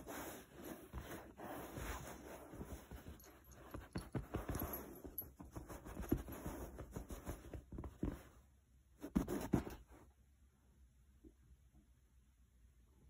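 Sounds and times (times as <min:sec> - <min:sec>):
hand scratching fabric cushion: 0:00.0 - 0:08.4, 0:09.0 - 0:10.0.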